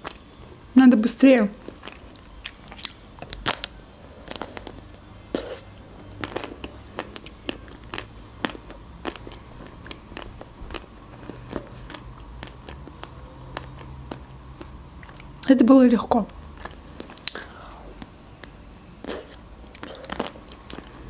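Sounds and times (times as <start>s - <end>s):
chocolate shell crackling when bitten: 2.7s - 4.8s
wet lip smacks: 17.1s - 17.6s.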